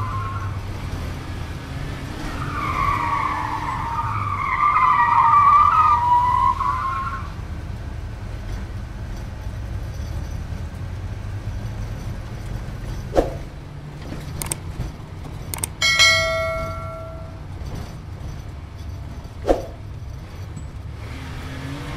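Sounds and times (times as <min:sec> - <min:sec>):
bright bell ding: 0:15.6 - 0:17.4
low steady rumble: 0:15.8 - 0:20.7.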